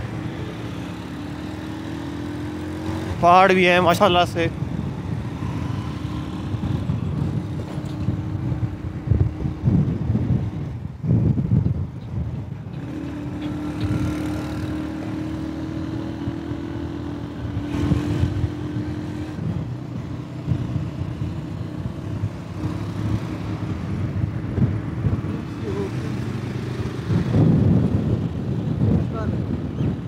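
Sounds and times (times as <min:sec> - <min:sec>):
vehicle engine and road noise: 0:00.0 - 0:30.0.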